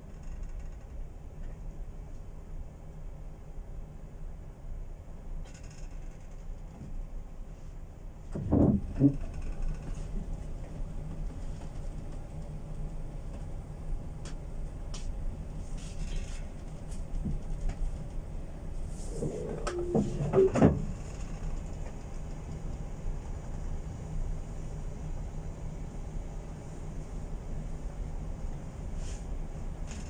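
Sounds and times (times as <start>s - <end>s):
knocks and rattles: 8.3s - 9.9s
machinery humming: 18.7s - 20.9s.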